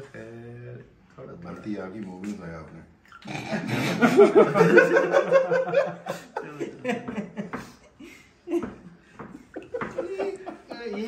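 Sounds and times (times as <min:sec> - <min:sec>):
men laughing: 0:03.5 - 0:11.0.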